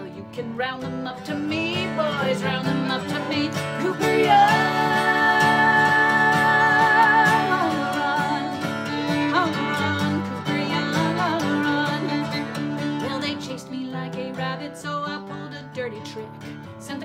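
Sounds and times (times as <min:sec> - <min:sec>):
fiddle melody: 0:00.0 - 0:16.0
strummed acoustic guitar: 0:00.0 - 0:17.0
singers holding a note: 0:03.8 - 0:11.6.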